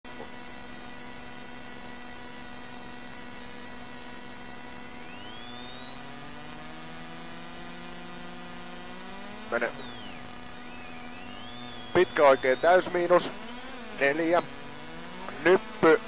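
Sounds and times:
rally car engine whining: 5.0s - 16.0s.

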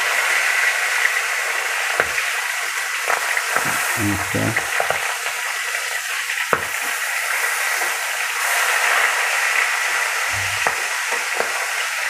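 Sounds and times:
fish frying in oil: 4.7s - 12.0s.

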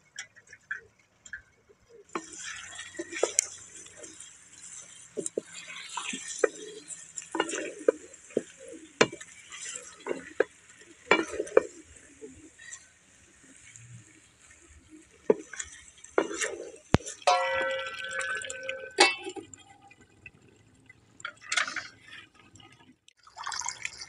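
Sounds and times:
frying sizzle: 2.1s - 21.8s
spoon scraping metal pan: 2.2s - 13.8s, 15.3s - 19.4s.

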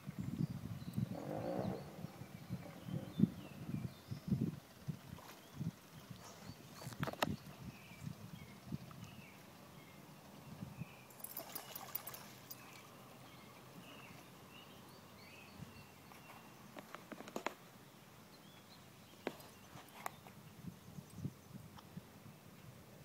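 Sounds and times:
distant birds chirping: 0.4s - 4.4s, 5.3s - 21.8s
dog splashing in water: 11.2s - 12.6s.

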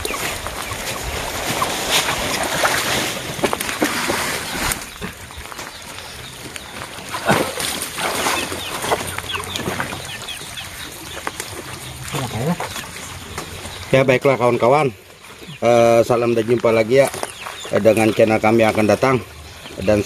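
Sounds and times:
water splashing and sloshing: 0.0s - 14.0s.

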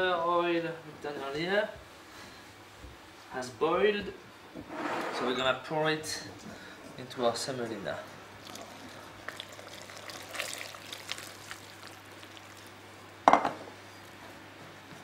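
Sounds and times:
hot water and oil pouring: 8.4s - 12.9s
saucepan knock on wooden worktop: 13.3s - 13.7s.

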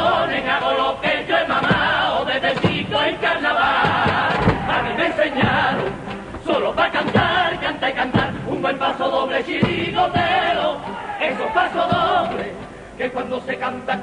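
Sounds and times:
guitar strumming: 0.0s - 8.8s
drum beats: 0.0s - 12.8s
male chorus singing: 0.0s - 14.0s.

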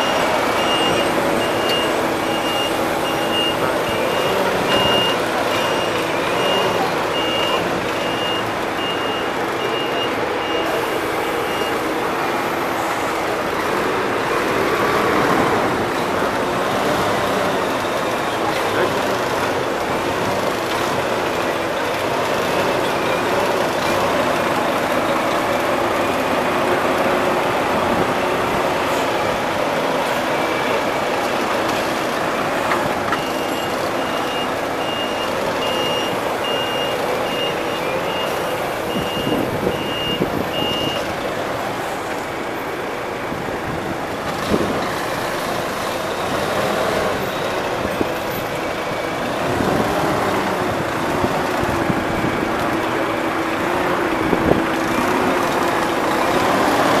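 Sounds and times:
reversing alarm beeping: 0.0s - 13.5s, 32.4s - 41.2s
diesel coach engine running: 0.0s - 57.0s.

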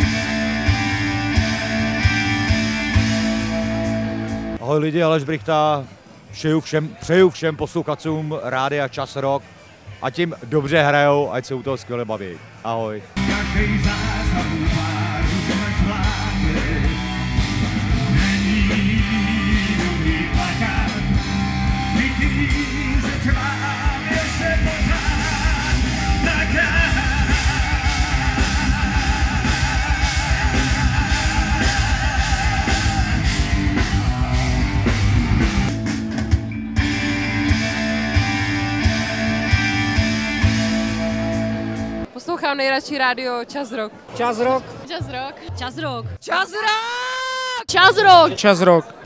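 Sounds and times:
electric guitar: 0.0s - 4.6s, 13.2s - 42.1s
rock song with singing: 0.0s - 4.6s, 13.2s - 42.1s
fast driving drum beat: 13.2s - 39.7s.

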